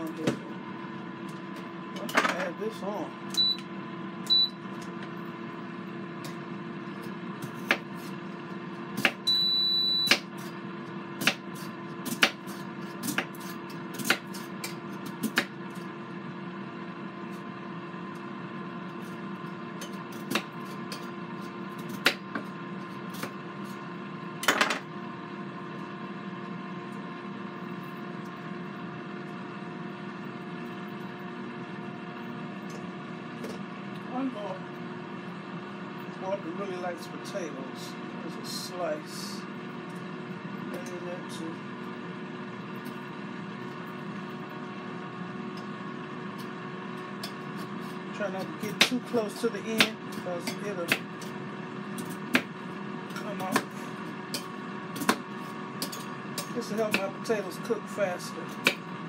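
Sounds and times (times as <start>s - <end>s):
air fryer humming: 0.0s - 59.0s
electronic keypad beeps: 3.4s - 3.6s, 4.3s - 4.6s, 9.2s - 10.2s.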